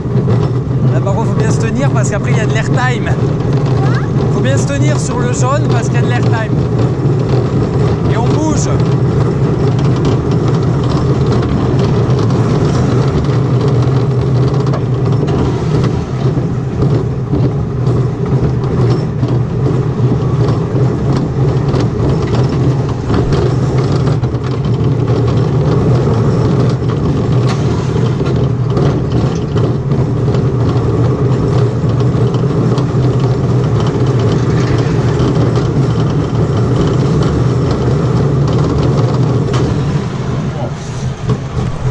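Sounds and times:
coaster cars clattering: 0.0s - 41.9s
roller coaster wheels rumbling on rails: 0.0s - 41.9s.

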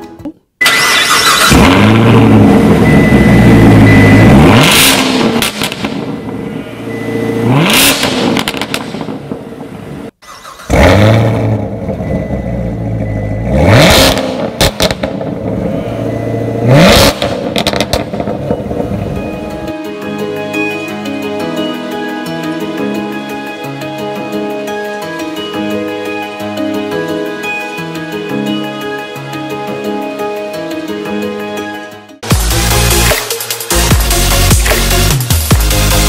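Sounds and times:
car engine starting and revving: 0.6s - 19.7s.

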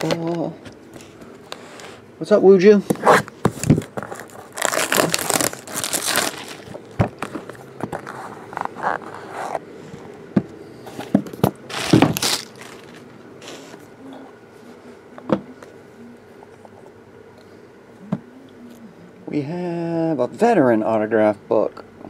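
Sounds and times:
plastic wrap crinkling and tearing: 3.1s - 9.6s, 11.7s - 13.7s.

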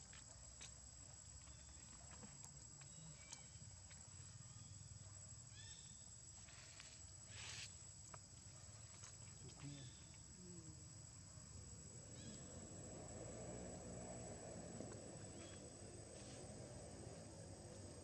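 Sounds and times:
high-pitched insect whine: 5.5s - 7.9s, 8.7s - 18.0s.

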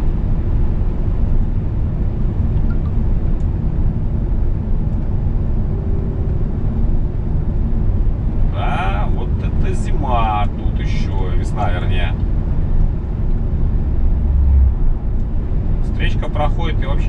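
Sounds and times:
truck cab engine and road rumble: 0.0s - 17.0s.

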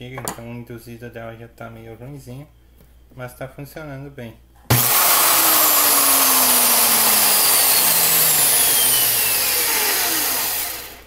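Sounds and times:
electric drill motor whirring: 4.7s - 11.0s.

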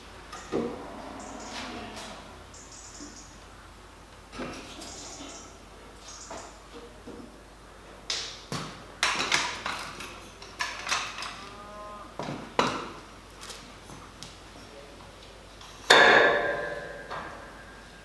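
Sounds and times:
metallic clanks and knocks: 15.8s - 17.8s.

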